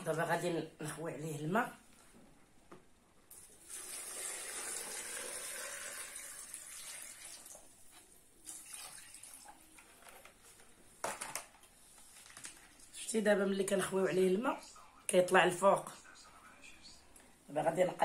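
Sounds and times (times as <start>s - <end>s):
water pouring into plastic bucket: 3.3s - 7.8s, 8.4s - 9.8s.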